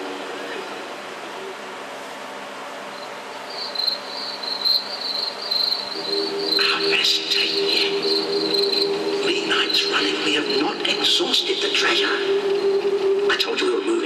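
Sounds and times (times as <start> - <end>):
crickets chirping: 2.9 - 11.1.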